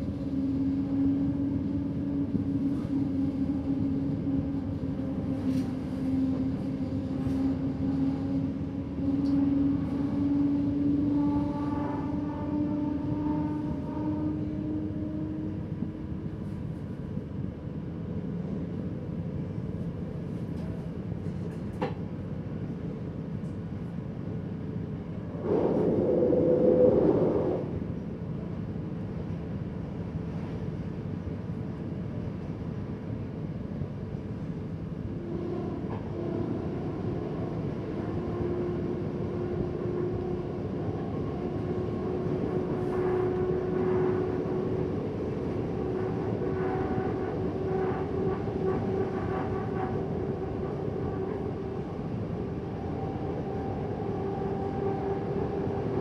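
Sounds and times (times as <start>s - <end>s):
train running rumble: 0.0s - 56.0s
rush of noise: 25.2s - 27.9s.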